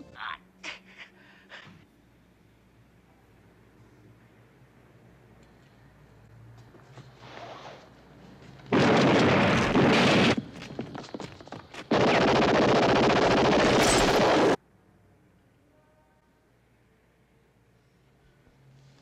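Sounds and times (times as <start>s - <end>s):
debris cracks and rattles: 13.5s - 14.6s.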